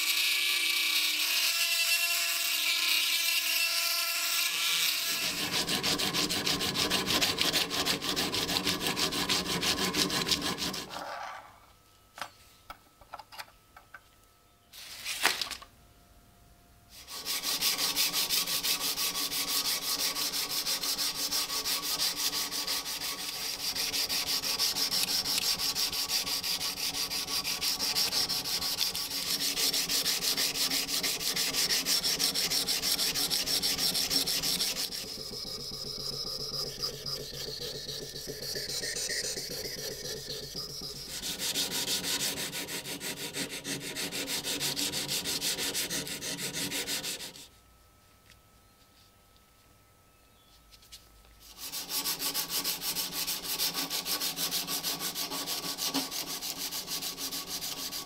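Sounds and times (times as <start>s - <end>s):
rotary tool polishing blade: 0.0s - 11.3s, 16.9s - 47.5s, 51.4s - 58.0s.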